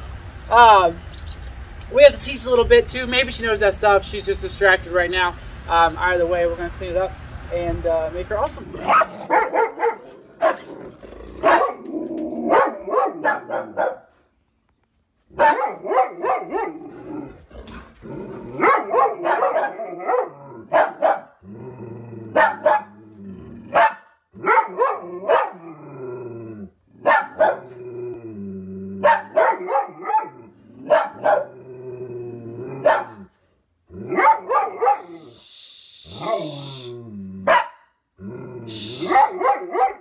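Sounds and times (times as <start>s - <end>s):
dog drawn-out low sounds: 8.5s - 14.0s, 15.2s - 37.6s, 38.2s - 40.0s
dog barking: 8.8s - 10.8s, 11.4s - 14.2s, 15.3s - 17.0s, 18.5s - 21.4s, 22.3s - 23.0s, 23.7s - 25.6s, 27.0s - 27.8s, 29.0s - 31.6s, 32.8s - 33.3s, 34.1s - 35.4s, 36.2s - 36.8s, 37.4s - 38.0s, 38.9s - 40.0s.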